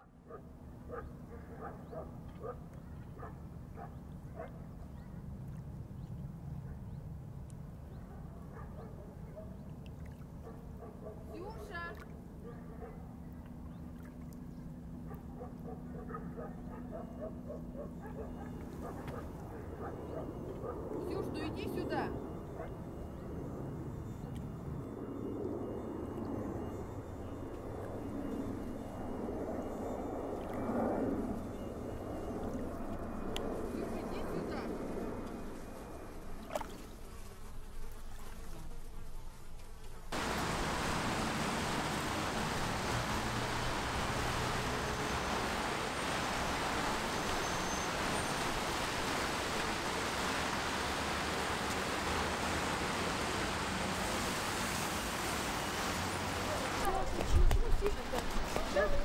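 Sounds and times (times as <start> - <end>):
steady low hum: 0.1 - 59.0
low motor drone: 12.1 - 38.8, 39.5 - 59.0
traffic on wet street: 40.2 - 59.0.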